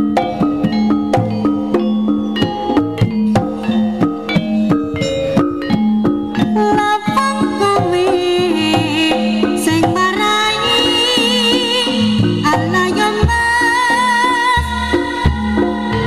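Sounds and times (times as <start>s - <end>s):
drums: 0.0s - 16.0s
gamelan gongs and metallophones: 0.0s - 16.0s
wavering melody line: 0.0s - 16.0s
held low note: 9.1s - 13.3s.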